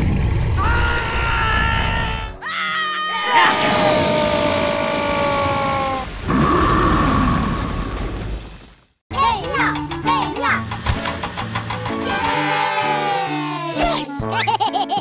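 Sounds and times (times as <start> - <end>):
growl-like sound: 3.3 - 8.1
cartoon soundtrack music: 9.1 - 15.0.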